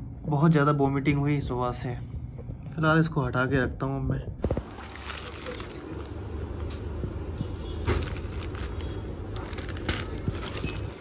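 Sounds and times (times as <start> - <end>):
low background hum: 0.0 - 11.0
plastic packaging crinkling: 4.4 - 7.1, 7.8 - 11.0.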